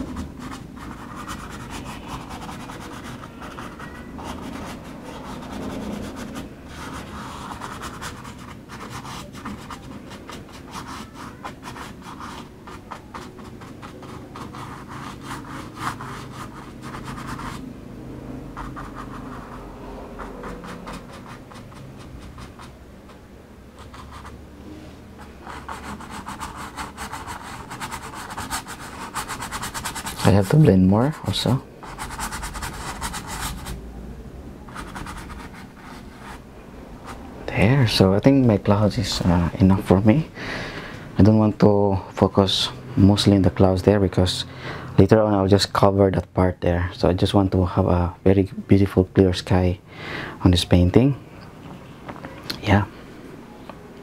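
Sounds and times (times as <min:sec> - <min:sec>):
brush scrubbing paint on canvas: 0:00.0 - 0:17.7, 0:18.5 - 0:23.2
faint low hum: 0:00.0 - 0:54.0.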